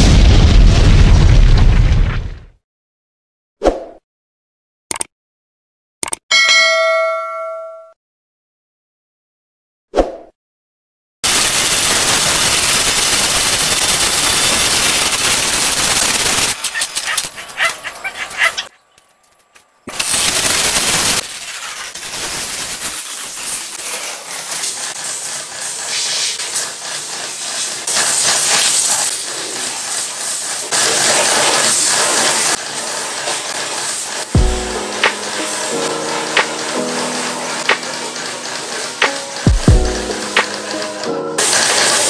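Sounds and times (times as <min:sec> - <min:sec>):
pressure washer spraying: 0:11.2 - 0:18.6, 0:19.9 - 0:42.0.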